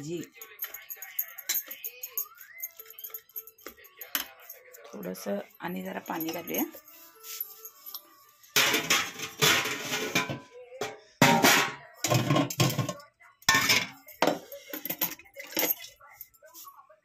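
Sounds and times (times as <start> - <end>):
phone rubbing against clothing: 6.6 - 8.5.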